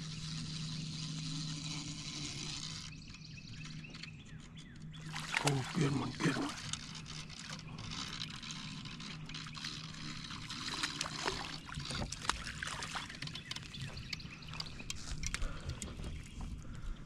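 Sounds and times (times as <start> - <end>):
faint low hum: 0.0 - 17.0
fish splashing in water: 5.0 - 6.6, 10.4 - 13.3.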